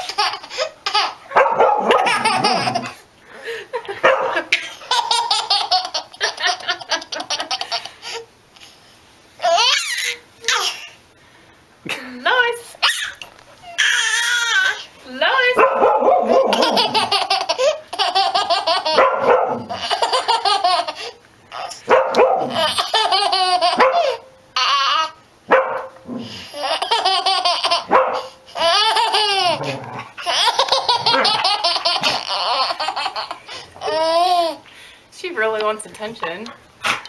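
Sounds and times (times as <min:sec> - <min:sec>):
baby laughing hard: 0:00.0 - 0:03.0, 0:03.8 - 0:08.3, 0:09.4 - 0:11.0, 0:12.8 - 0:14.8, 0:16.2 - 0:21.8, 0:22.4 - 0:25.2, 0:26.4 - 0:34.6
dog barking: 0:01.3 - 0:02.2, 0:04.0 - 0:04.5, 0:15.6 - 0:16.7, 0:19.0 - 0:19.8, 0:21.9 - 0:22.6, 0:23.8 - 0:24.2, 0:25.5 - 0:26.0, 0:27.9 - 0:28.3.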